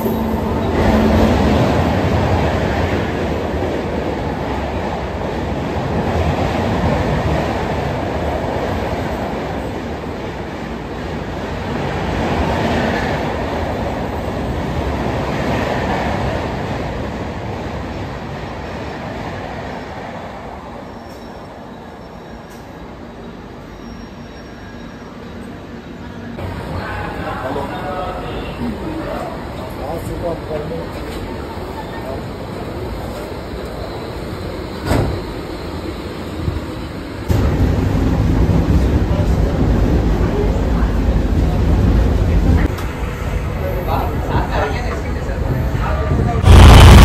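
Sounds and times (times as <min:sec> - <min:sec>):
train wheels rumbling on rails: 0:26.3 - 0:47.0.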